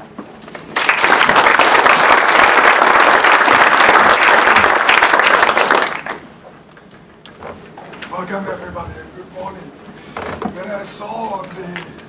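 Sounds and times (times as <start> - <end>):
audience applauding: 0.7 - 6.3.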